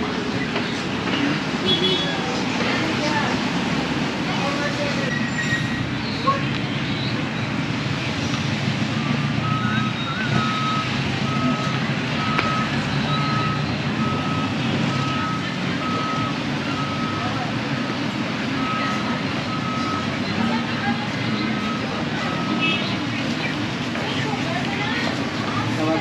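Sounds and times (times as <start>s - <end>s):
street traffic: 0.0s - 26.0s
reversing alarm beeping: 8.9s - 17.4s, 18.6s - 20.6s, 21.5s - 22.8s.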